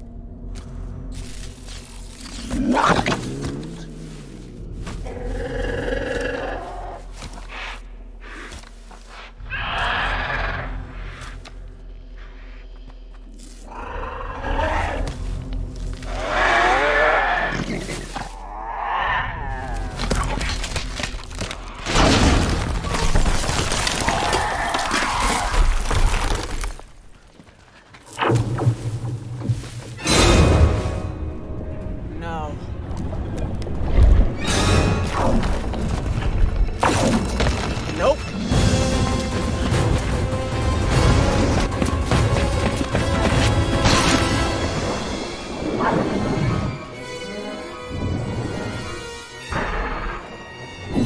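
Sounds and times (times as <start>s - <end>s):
lake ice cracking: 22.3s - 27.1s.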